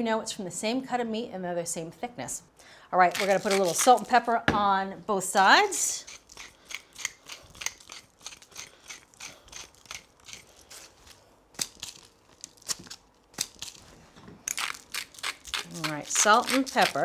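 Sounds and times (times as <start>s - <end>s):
pepper mills grinding: 3.0s - 4.2s, 5.8s - 17.0s.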